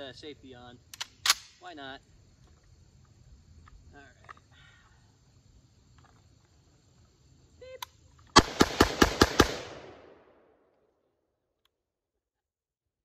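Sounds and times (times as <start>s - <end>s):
rifle shots with echo: 8.4s - 10.6s.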